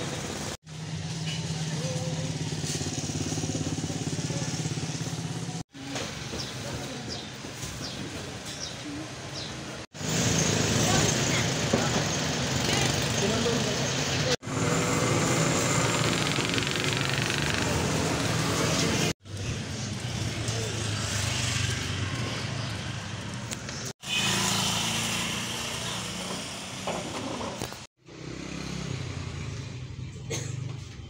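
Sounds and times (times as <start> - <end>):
motorcycle engines running: 0.0 - 8.0, 10.0 - 31.0
motor traffic: 0.0 - 31.0
voices: 1.2 - 9.5, 10.4 - 14.4.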